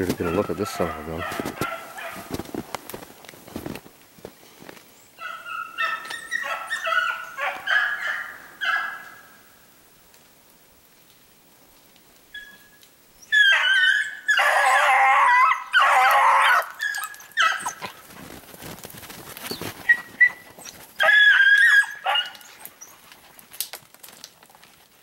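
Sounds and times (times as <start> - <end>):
dogs baying: 0.1 - 2.4, 5.2 - 9.2, 13.3 - 18.5, 19.4 - 23.2
dogs yelping: 0.2 - 2.4, 5.2 - 9.2, 13.2 - 18.4, 19.4 - 23.2.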